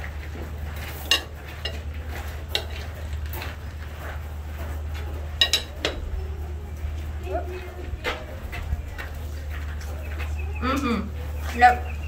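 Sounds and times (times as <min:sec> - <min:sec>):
steady low hum: 0:00.0 - 0:12.0
cutlery clinking on plates: 0:00.8 - 0:03.5, 0:05.2 - 0:06.1.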